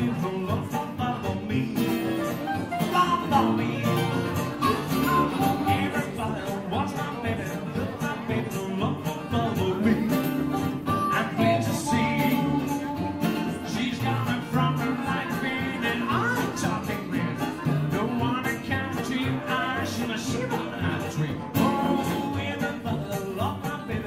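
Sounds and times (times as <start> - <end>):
harmonica and clarinet melody: 0.0 - 6.6, 9.9 - 18.6
strummed guitars and banjo: 0.0 - 24.0.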